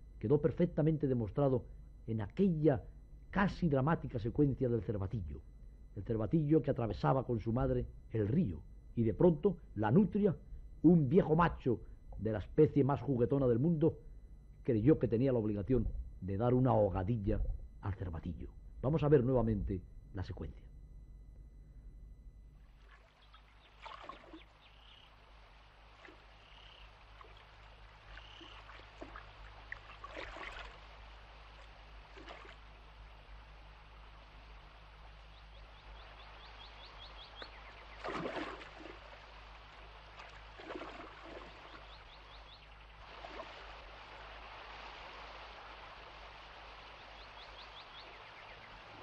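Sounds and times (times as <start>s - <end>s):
river water flowing and splashing: 22.7s - 49.0s
high bird calls: 23.1s - 25.2s, 26.0s - 29.2s, 35.2s - 38.2s, 41.3s - 43.0s, 47.0s - 49.0s.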